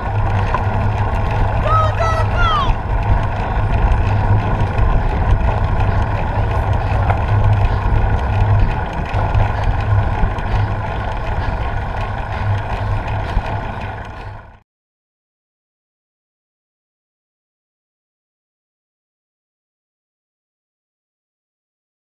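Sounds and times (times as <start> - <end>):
road noise: 0.0 - 14.6
wind rumble on microphone: 0.0 - 14.6.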